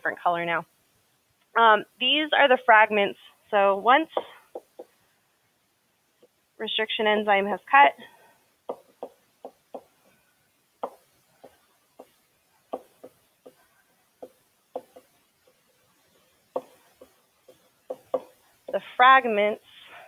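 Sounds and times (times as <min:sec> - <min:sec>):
stylus tapping on tablet screen: 0:04.1 - 0:05.0, 0:08.6 - 0:10.2, 0:10.8 - 0:15.6, 0:16.4 - 0:18.8.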